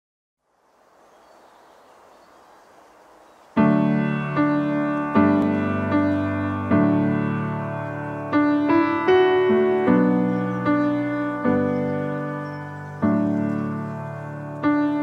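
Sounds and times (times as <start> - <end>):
faint hiss: 0.4 - 15.0
slow piano chords: 3.5 - 15.0.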